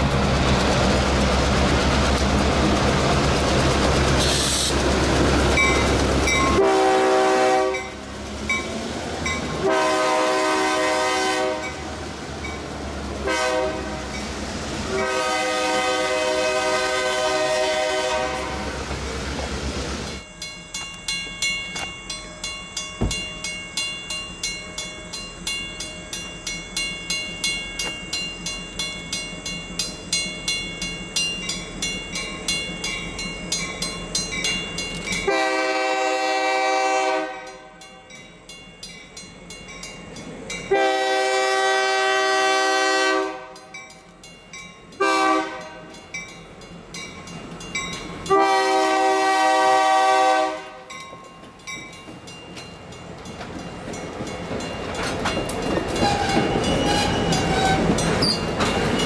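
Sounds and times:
diesel locomotive engine: 0:00.0 - 0:59.0
crossing warning bell ringing: 0:05.4 - 0:14.4, 0:20.1 - 0:59.0
train air horn blasts: 0:06.5 - 0:08.0, 0:09.6 - 0:11.8, 0:13.2 - 0:14.2, 0:14.9 - 0:18.8, 0:35.2 - 0:37.8, 0:40.7 - 0:43.7, 0:45.0 - 0:45.9, 0:48.3 - 0:50.9.

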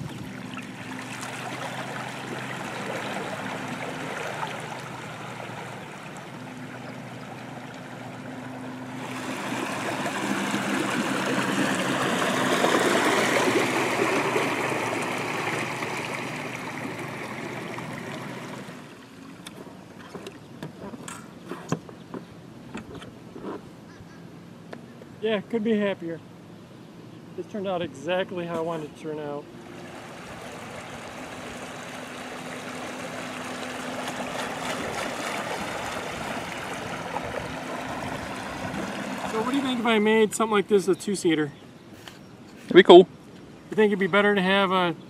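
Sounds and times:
water rushing and splashing: 0:00.0 - 0:19.4, 0:28.4 - 0:41.4
trolling motor humming: 0:00.0 - 0:25.0, 0:26.2 - 0:42.6.

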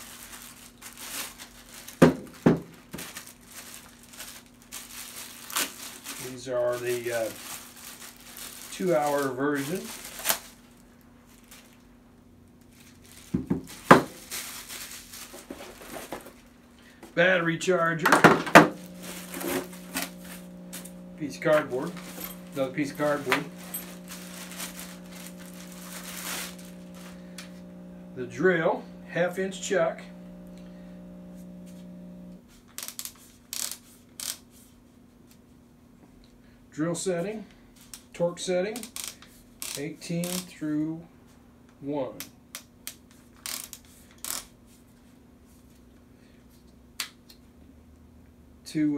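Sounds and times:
rustling handling noise: 0:00.0 - 0:11.9, 0:12.6 - 0:17.2, 0:17.8 - 0:33.4
faint steady hum: 0:16.7 - 0:32.4.

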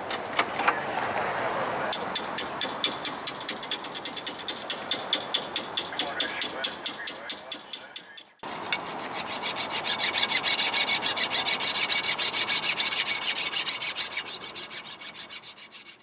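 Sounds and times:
hand tool rasping clicks: 0:02.0 - 0:08.8.

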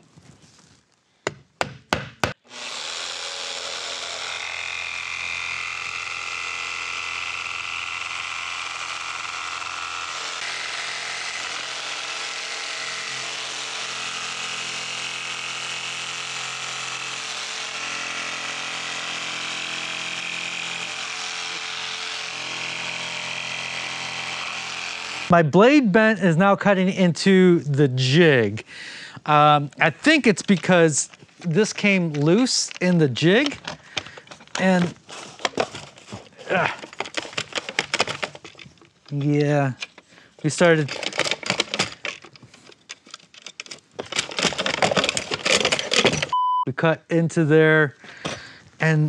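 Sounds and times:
hammer tapping nail: 0:01.3 - 0:02.4
electric jigsaw cutting wood: 0:02.3 - 0:25.3, 0:31.7 - 0:39.9, 0:40.5 - 0:43.0, 0:43.8 - 0:46.3.

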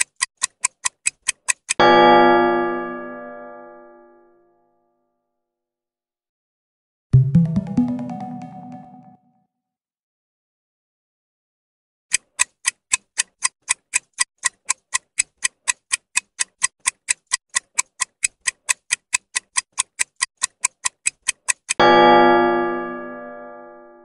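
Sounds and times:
clock ticking sound effect: 0:00.0 - 0:02.0, 0:07.2 - 0:09.1, 0:12.1 - 0:22.2.

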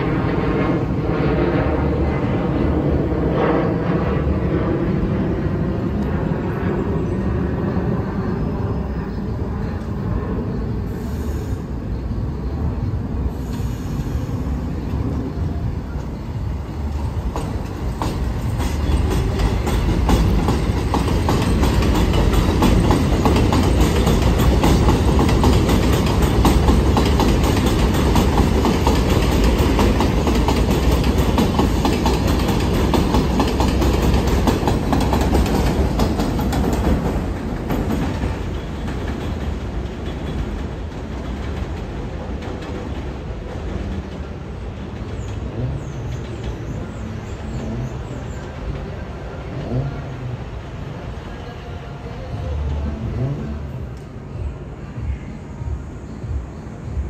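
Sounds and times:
train wheels clattering on track: 0:13.3 - 0:50.1.

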